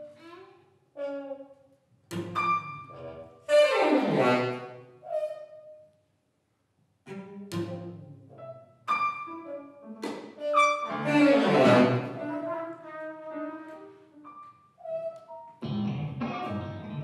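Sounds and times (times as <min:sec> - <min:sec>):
jazz ensemble playing: 0:07.6 - 0:15.4.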